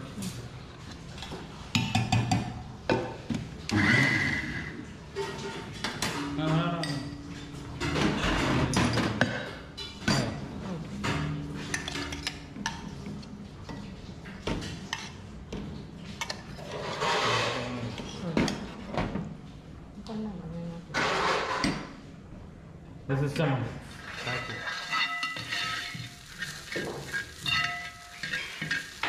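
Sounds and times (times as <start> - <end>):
metal spoon scraping steel jar: 24.0 - 29.0.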